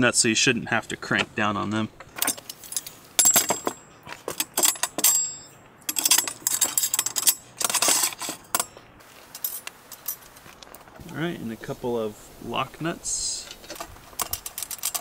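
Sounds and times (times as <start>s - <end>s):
small metal hardware clinking: 2.0s - 10.4s, 13.4s - 15.0s.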